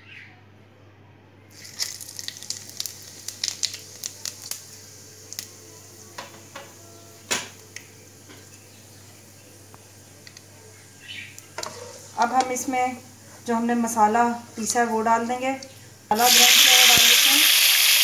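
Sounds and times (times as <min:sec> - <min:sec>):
crackles and pops: 0:01.5 - 0:05.6
seeds sizzling in hot oil: 0:01.5 - 0:09.4, 0:16.1 - 0:18.0.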